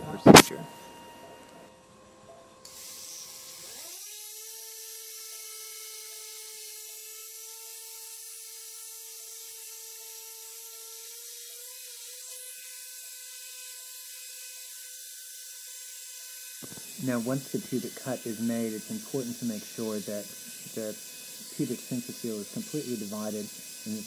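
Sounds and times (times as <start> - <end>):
power saw whining: 2.6 - 8.4, 15.8 - 24.0.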